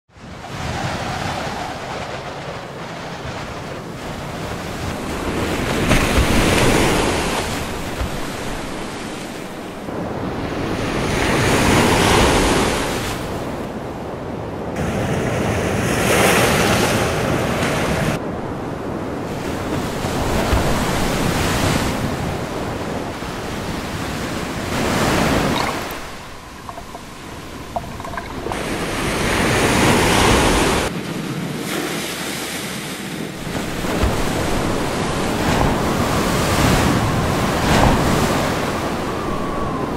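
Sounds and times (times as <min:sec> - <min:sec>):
wind buffeting microphone: 0:00.2 - 0:16.0, 0:16.6 - 0:31.7, 0:33.3 - 0:39.9
storm surf crashing: 0:16.8 - 0:31.6, 0:33.4 - 0:39.9.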